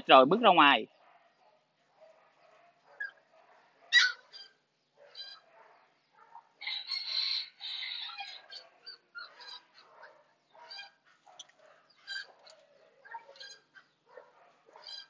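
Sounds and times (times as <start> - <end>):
puppy yelping: 2.9 - 3.2, 3.8 - 6.5, 7.8 - 15.0.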